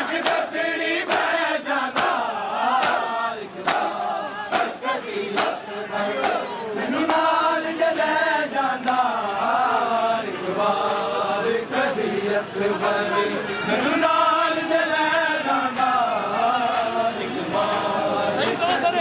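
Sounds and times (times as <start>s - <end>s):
men chanting in unison: 0.0s - 19.0s
chest-beating slaps: 1.1s - 1.3s, 1.9s - 2.2s, 2.8s - 5.6s, 6.2s - 7.3s.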